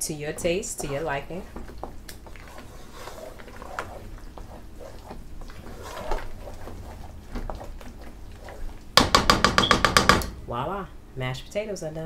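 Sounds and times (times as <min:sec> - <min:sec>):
mashed potatoes squelching: 0:00.0 - 0:09.2
spoon knocking against pot: 0:09.0 - 0:10.3.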